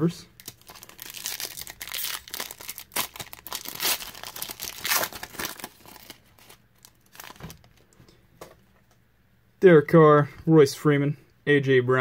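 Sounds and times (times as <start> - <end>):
foil wrapper tearing and crinkling: 0.4 - 7.8
faint wrapper rustling: 0.4 - 8.0.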